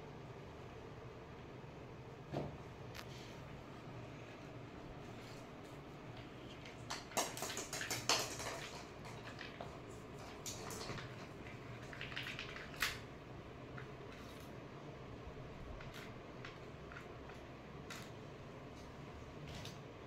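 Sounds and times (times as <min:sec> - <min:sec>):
plastic ball knocking on tiled floor: 0:06.8 - 0:09.7.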